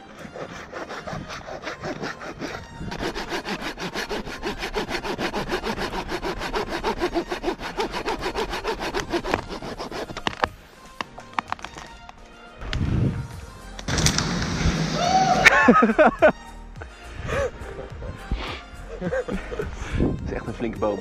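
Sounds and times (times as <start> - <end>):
hand saw cutting tree trunk: 0.0 - 10.5.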